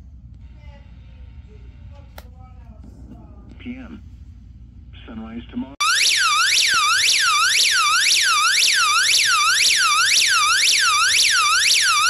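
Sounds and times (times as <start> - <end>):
electronic siren alarm: 5.8 - 12.0.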